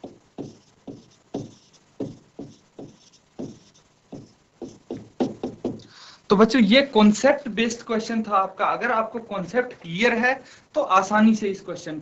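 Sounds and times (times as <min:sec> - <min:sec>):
stylus tapping on screen: 0:00.0 - 0:05.9.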